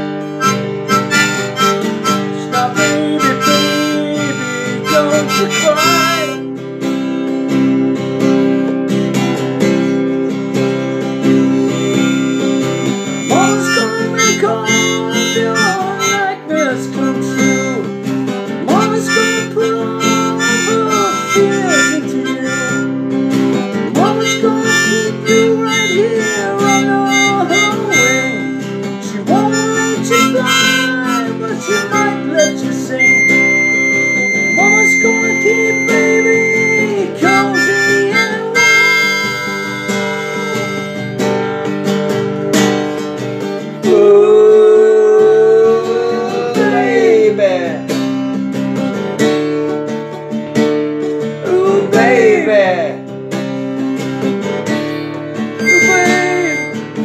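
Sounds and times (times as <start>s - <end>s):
harmonica: 0.0s - 6.6s, 10.6s - 41.6s, 55.4s - 57.0s
strummed acoustic guitar: 0.0s - 57.0s.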